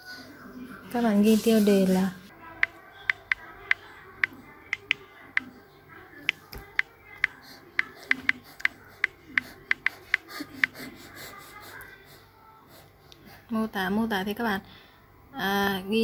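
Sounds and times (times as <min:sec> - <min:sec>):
smartphone keyboard taps: 0:02.6 - 0:05.5, 0:06.3 - 0:10.2.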